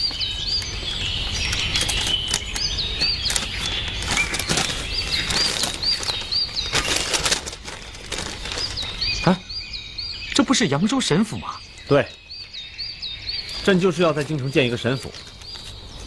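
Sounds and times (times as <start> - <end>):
stiff paper crackling: 0.0 - 9.4, 13.5 - 16.0
outdoor background hum: 0.0 - 16.0
small birds chirping: 0.0 - 16.0.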